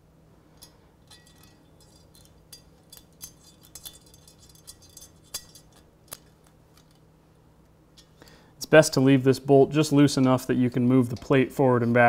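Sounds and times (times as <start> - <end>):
small metallic clicks and clinks: 0.5 - 7.1, 7.9 - 8.4.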